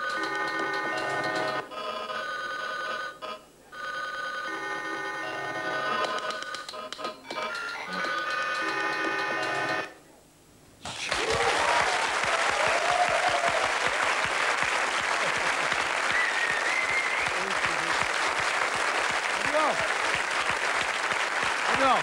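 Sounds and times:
phone ringtones chord: 0.0s - 6.2s, 7.3s - 10.0s
audience applause: 10.9s - 22.0s
audience cheers: 11.0s - 18.3s.

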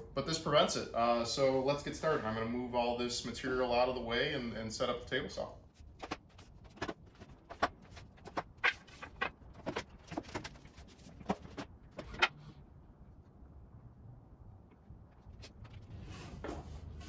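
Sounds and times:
wooden boards knocking: 6.0s - 12.4s.

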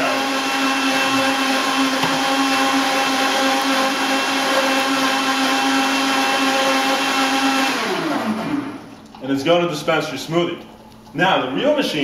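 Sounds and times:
blender motor whine: 0.0s - 9.0s.

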